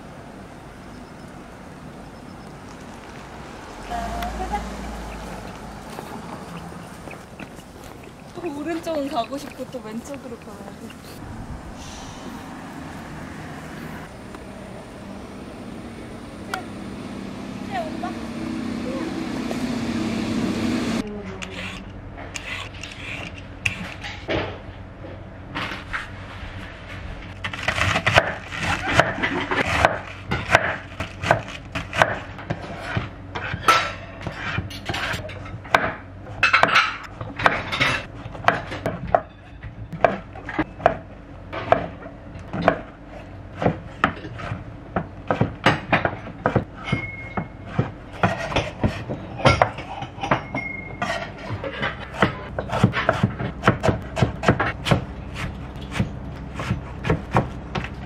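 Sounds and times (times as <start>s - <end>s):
knife chopping on wooden board: 52.1s - 58.0s.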